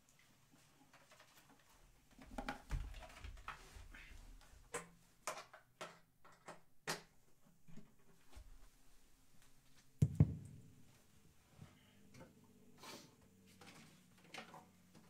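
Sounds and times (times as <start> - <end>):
dull thump: 10.0 - 10.7.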